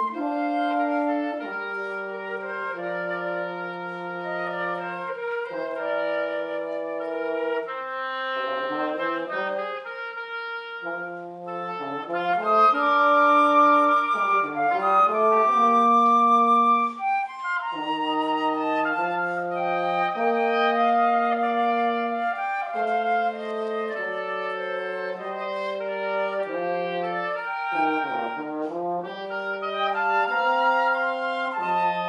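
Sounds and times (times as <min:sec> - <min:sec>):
flute: 0:00.0 - 0:32.0
french horn: 0:00.0 - 0:32.0
oboe: 0:00.0 - 0:32.0.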